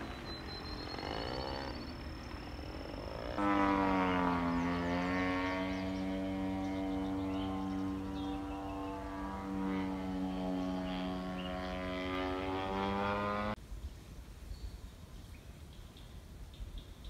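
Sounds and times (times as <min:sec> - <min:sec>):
faint bird chirps: 0:00.0 - 0:03.4
model airplane engine droning: 0:00.0 - 0:13.6.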